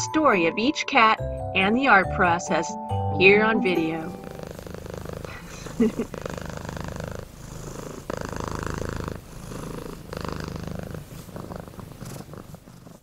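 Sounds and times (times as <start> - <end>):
cat purring: 3.8 - 13.0.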